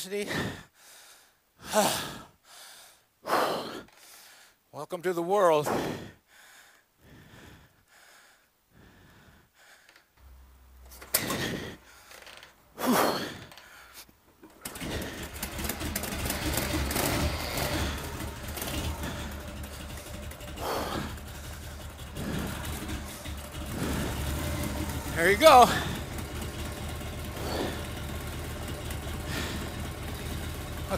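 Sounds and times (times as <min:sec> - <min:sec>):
motorcycle kick-start: 0:10.8 - 0:12.5, 0:14.4 - 0:30.9
motorcycle engine running: 0:14.6 - 0:30.9.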